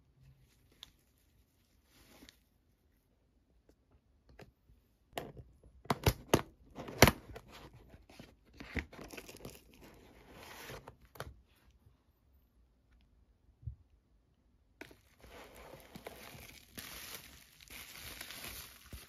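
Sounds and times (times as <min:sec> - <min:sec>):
plastic packaging crackling: 0:14.8 - 0:19.0.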